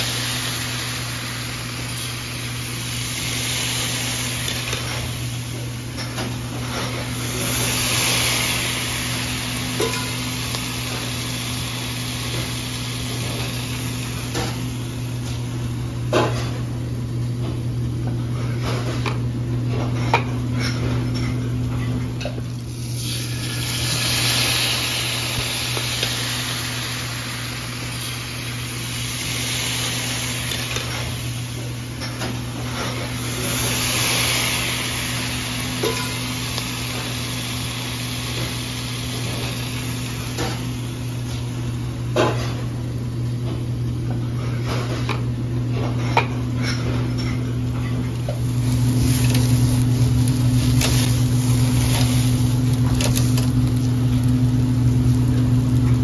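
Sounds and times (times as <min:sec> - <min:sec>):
hiss: 0:00.0 - 0:05.7, 0:06.6 - 0:14.6, 0:23.2 - 0:31.8, 0:32.6 - 0:41.0
steady low hum: 0:00.0 - 0:56.0
utensils and pans clinking: 0:09.7 - 0:10.2, 0:35.8 - 0:36.3.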